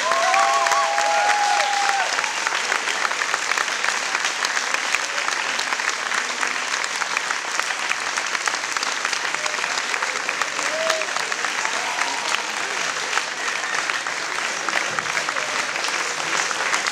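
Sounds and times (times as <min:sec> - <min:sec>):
audience cheering: 0:00.0 - 0:03.1, 0:09.3 - 0:16.9
audience clapping: 0:00.0 - 0:16.9.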